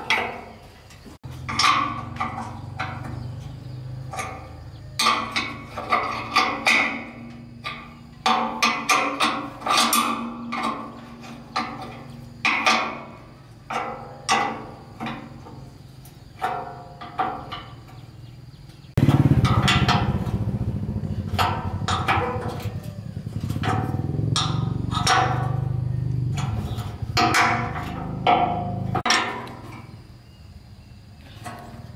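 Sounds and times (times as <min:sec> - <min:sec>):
low mechanical running noise: 0:17.6 - 0:29.0.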